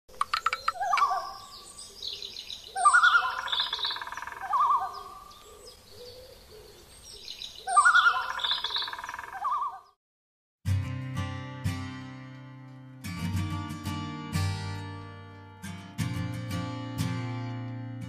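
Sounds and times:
bird calls and chirps: 0:00.1 - 0:10.0.

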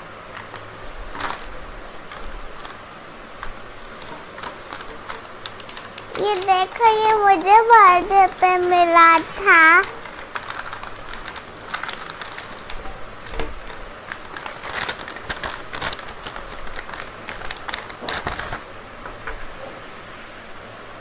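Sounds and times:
plastic pouch crinkling: 0:00.3 - 0:18.6
items clicking on floor: 0:03.4 - 0:19.7.

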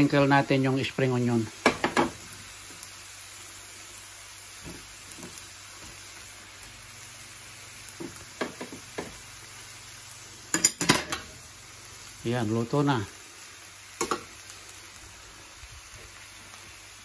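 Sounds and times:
rice sizzling in a pan: 0:00.0 - 0:17.0
soft taps on a pan: 0:08.0 - 0:09.2, 0:14.0 - 0:14.3.

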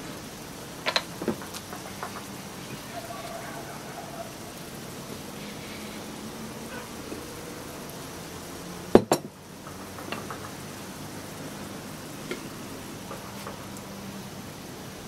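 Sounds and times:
steady low hiss: 0:00.0 - 0:15.0
kitchenware clinks and taps: 0:09.0 - 0:09.3.

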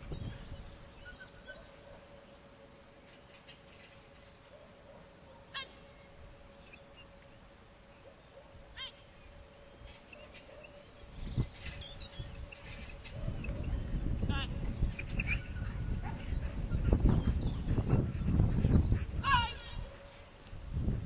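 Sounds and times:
wind buffeting microphone: 0:00.0 - 0:01.5, 0:11.0 - 0:21.0
small birds chirping: 0:00.0 - 0:02.4, 0:05.5 - 0:20.3
faint steady hum: 0:00.0 - 0:21.0.

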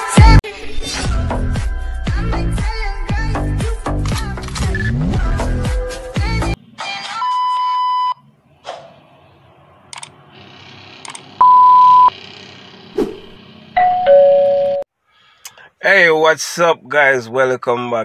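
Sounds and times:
electronic beep: 0:11.4 - 0:12.1.

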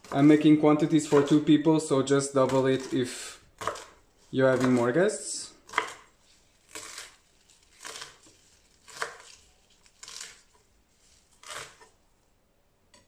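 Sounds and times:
knife chopping celery on board: 0:01.0 - 0:01.5, 0:02.4 - 0:04.9, 0:05.6 - 0:06.1, 0:07.8 - 0:10.5.

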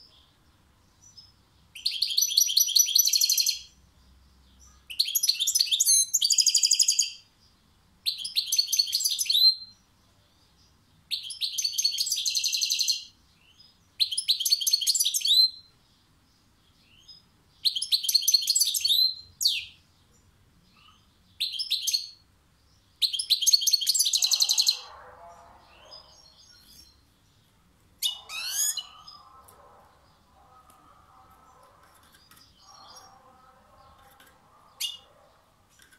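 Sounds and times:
finch twittering song: 0:00.9 - 0:35.2.

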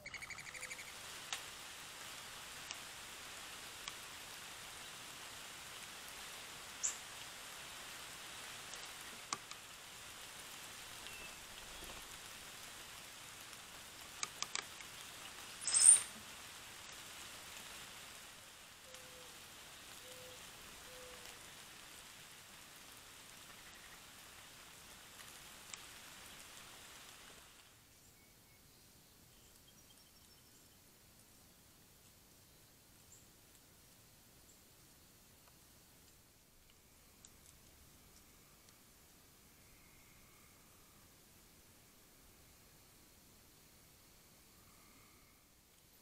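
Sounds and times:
high chirp: 0:00.0 - 0:00.9
steady hiss: 0:00.0 - 0:46.0.

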